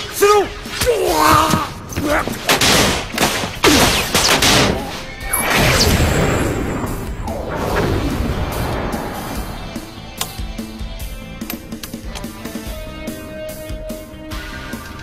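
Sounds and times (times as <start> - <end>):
cartoon crashes and impacts: 2.5 - 8.5
falling whooshes: 5.3 - 10.1.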